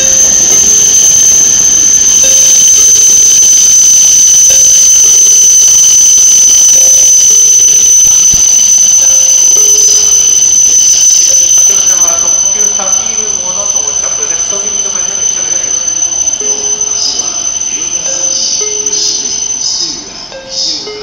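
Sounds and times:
low two-note signal tone: 0.0 - 21.0
train wheels squealing: 0.0 - 21.0.

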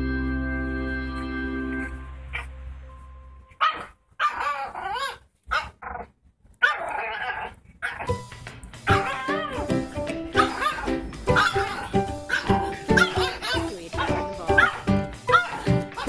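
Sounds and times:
organ-like background music: 0.0 - 4.6, 8.1 - 16.0
puppy yapping: 3.6 - 8.2, 8.8 - 16.0.

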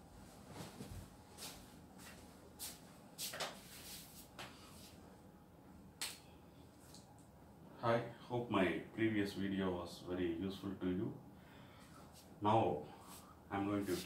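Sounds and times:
faint footstep scuffs: 0.5 - 5.0.

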